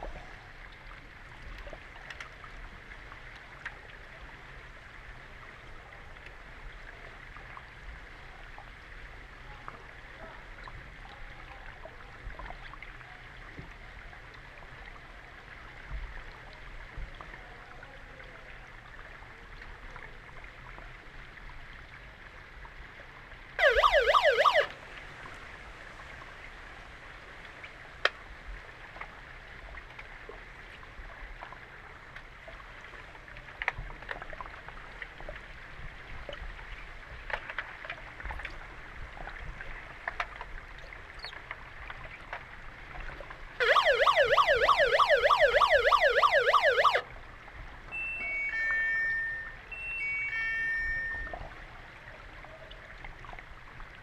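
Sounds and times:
warbling underwater siren: 0:23.6 - 0:24.8, 0:43.6 - 0:47.1, 0:47.9 - 0:51.5
pool water hiss: 0:23.6 - 0:28.8.

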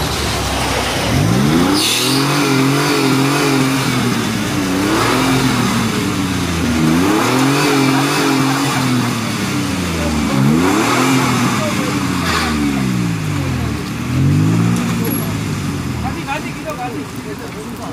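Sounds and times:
engine revving hard: 0:00.0 - 0:16.3.

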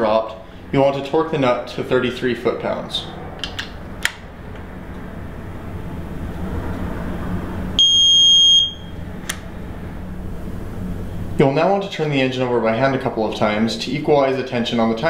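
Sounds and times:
low hum: 0:00.0 - 0:14.5
high electronic beep: 0:07.8 - 0:08.9.

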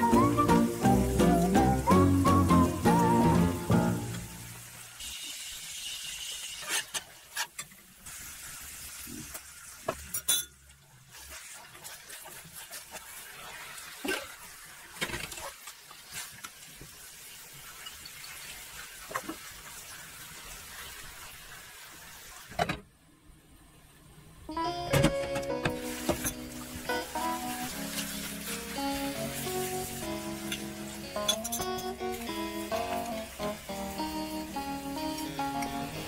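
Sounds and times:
sauce sizzling and simmering: 0:00.0 - 0:06.8, 0:07.9 - 0:09.8, 0:11.0 - 0:14.9, 0:15.6 - 0:22.4, 0:25.7 - 0:36.0
utensils clinking against pan: 0:30.4 - 0:32.1.

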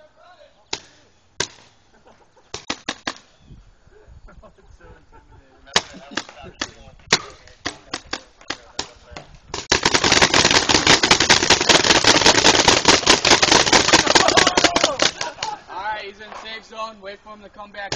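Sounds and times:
paintball marker shots popping: 0:00.7 - 0:01.8, 0:02.5 - 0:03.4, 0:05.8 - 0:15.5.

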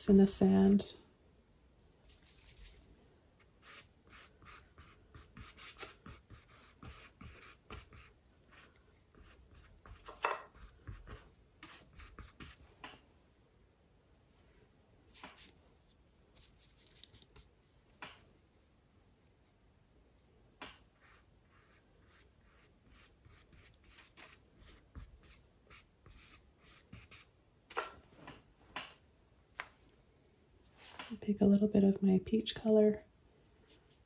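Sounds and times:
paintbrush dabbing on canvas: 0:03.4 - 0:13.0, 0:20.2 - 0:27.3
brush scraping canvas: 0:33.4 - 0:34.0.

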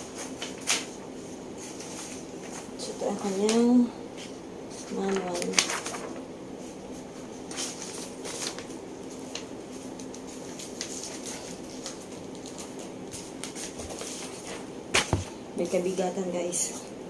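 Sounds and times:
steady low hum: 0:00.0 - 0:17.0
paper and cardboard rustling: 0:04.7 - 0:15.3.

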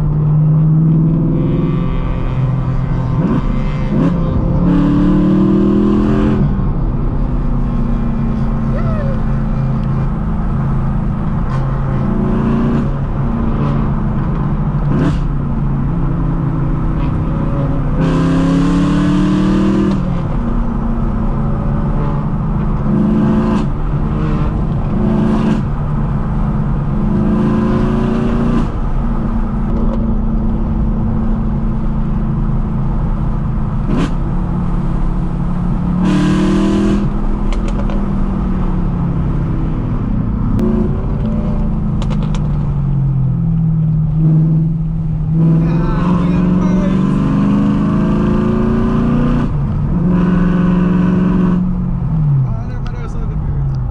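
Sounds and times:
car engine revving: 0:00.0 - 0:53.9
exhaust cracks: 0:36.8 - 0:38.7, 0:39.8 - 0:47.1.

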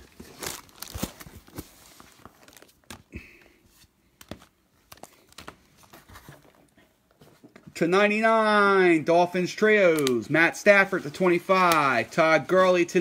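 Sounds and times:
plastic wrapping crinkling: 0:00.0 - 0:03.4, 0:04.2 - 0:06.8.

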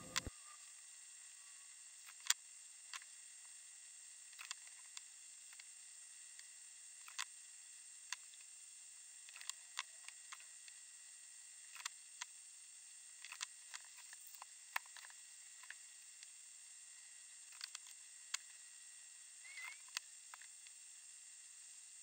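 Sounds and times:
faint steady hiss: 0:00.0 - 0:22.0
small sharp clicks and taps: 0:04.4 - 0:05.7, 0:09.3 - 0:10.8, 0:11.7 - 0:12.3, 0:13.2 - 0:16.3, 0:17.5 - 0:18.6.

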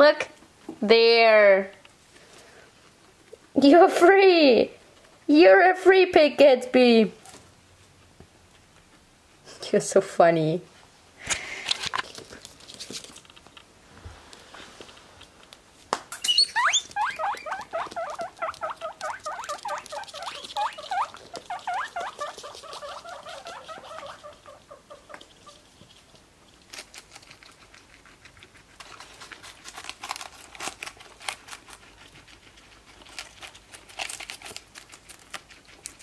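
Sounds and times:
guinea pigs chewing a leaf: 0:11.4 - 0:13.7, 0:14.3 - 0:15.6, 0:16.2 - 0:36.0
guinea pigs squeaking: 0:16.1 - 0:25.8.

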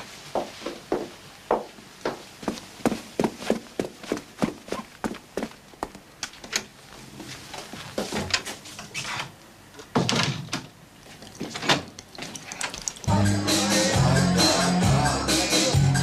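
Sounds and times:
footsteps: 0:00.0 - 0:08.8.

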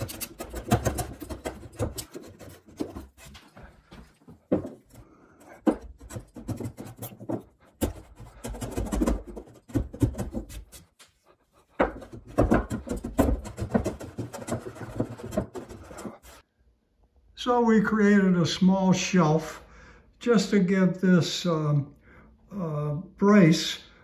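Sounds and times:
hand plane scraping wood: 0:00.0 - 0:16.4.

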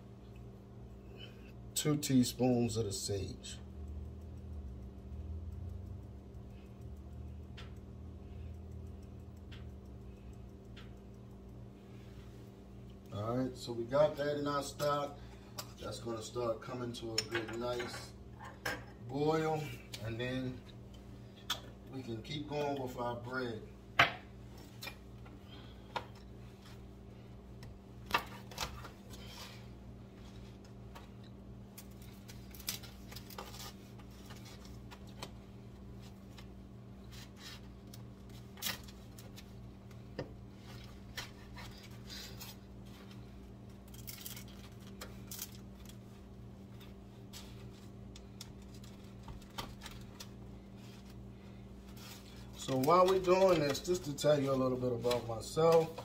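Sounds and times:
steady low hum: 0:00.0 - 0:56.0
bread crust crunching: 0:30.2 - 0:54.4.

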